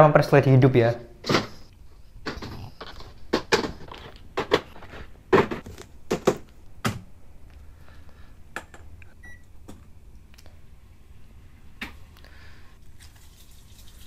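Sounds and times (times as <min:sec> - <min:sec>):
objects knocking and clattering: 0:02.2 - 0:07.0.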